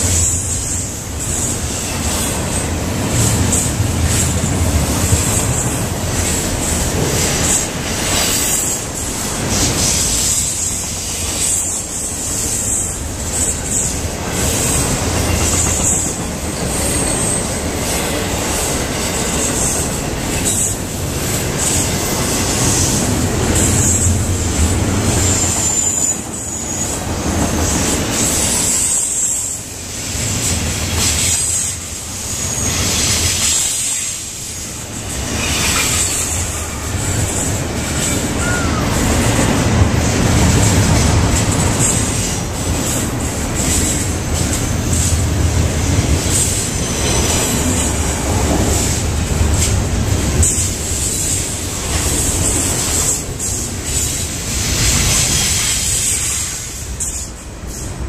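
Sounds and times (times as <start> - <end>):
freight train wheels rumbling: 0.0 - 58.0
wheel squeal: 9.6 - 18.0, 25.2 - 27.0, 31.0 - 34.2, 35.4 - 39.0.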